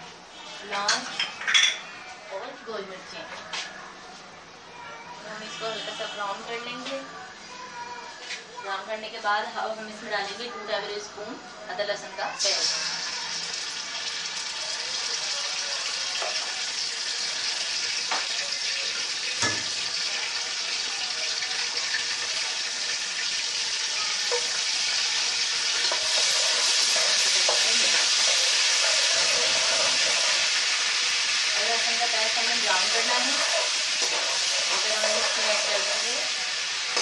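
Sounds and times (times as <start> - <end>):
paste sizzling in hot oil: 12.4 - 37.0.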